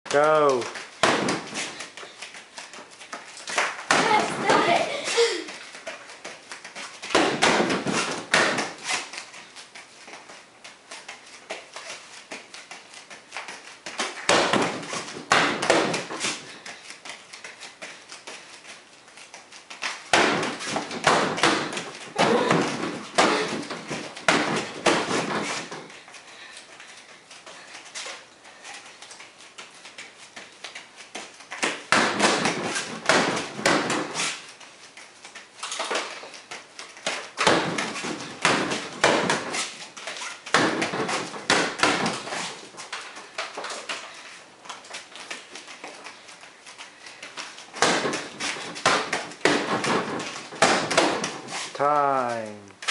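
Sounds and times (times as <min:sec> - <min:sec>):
kicks and punches hitting bag: 0:01.0 - 0:01.8, 0:03.9 - 0:05.0, 0:07.1 - 0:08.9, 0:14.2 - 0:16.4, 0:20.1 - 0:25.8, 0:31.6 - 0:34.2, 0:37.4 - 0:39.7, 0:40.5 - 0:42.4, 0:47.8 - 0:51.6.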